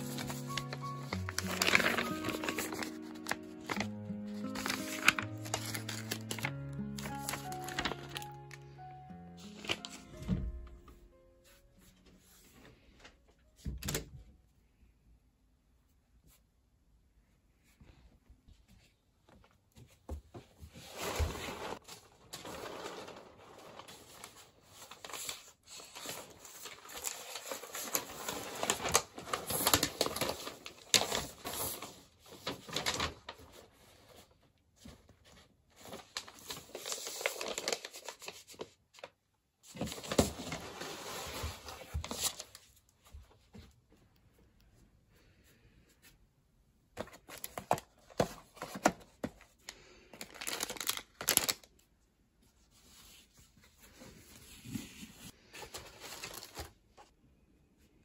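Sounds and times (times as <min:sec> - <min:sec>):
paper and plastic rustling: 0:00.0 - 0:14.0, 0:18.7 - 0:43.8, 0:47.0 - 0:51.9, 0:52.5 - 0:57.1.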